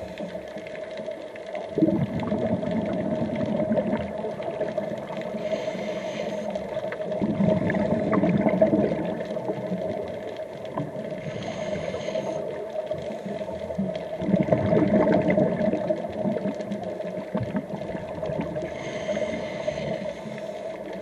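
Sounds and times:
regulator inhale hiss: 0:00.0 - 0:00.7, 0:05.2 - 0:07.1, 0:11.2 - 0:13.7, 0:18.5 - 0:21.0
exhaled bubbles underwater: 0:00.0 - 0:21.0.

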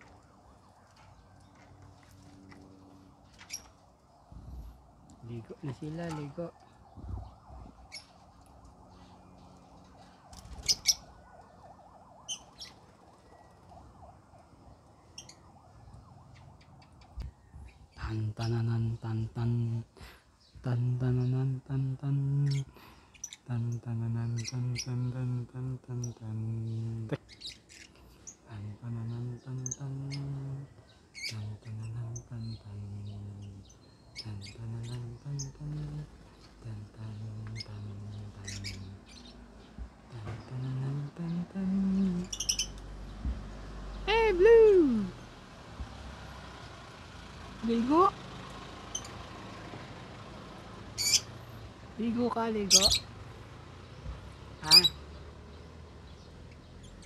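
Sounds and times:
birds chirping: 0:00.0 - 0:57.0
low steady hum in bursts: 0:17.2 - 0:27.2, 0:28.0 - 0:46.8.

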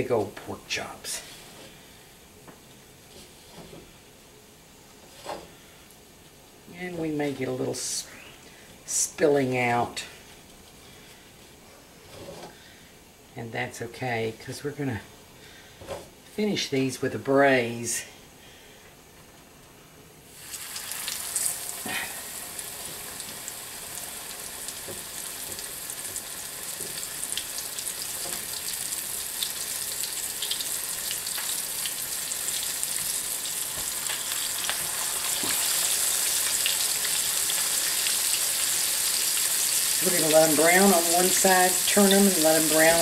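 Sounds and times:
meat sizzling in hot oil: 0:20.3 - 0:43.0
oil popping and crackling: 0:20.4 - 0:43.0.

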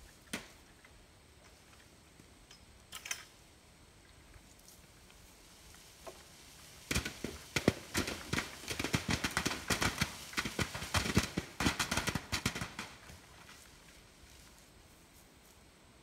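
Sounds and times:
apples thudding onto tarp and grass: 0:05.8 - 0:14.6.

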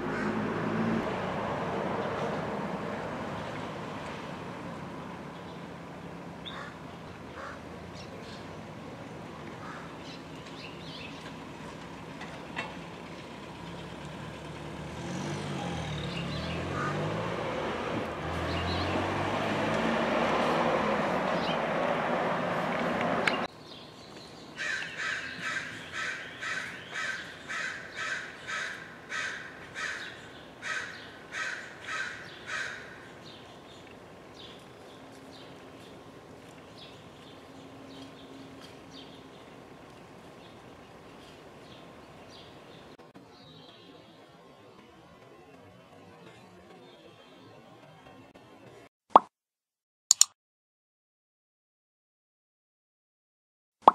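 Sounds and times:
motor vehicle passing: 0:00.0 - 0:08.8, 0:09.6 - 0:23.5
street traffic: 0:00.0 - 0:48.9
crow cawing: 0:00.1 - 0:00.4, 0:06.5 - 0:06.8, 0:07.4 - 0:07.6, 0:09.6 - 0:10.0, 0:16.8 - 0:17.0, 0:24.6 - 0:33.0.

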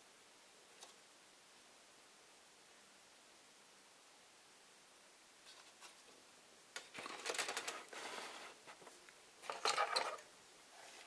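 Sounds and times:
plastic sprues rustling and clattering: 0:06.8 - 0:11.0.

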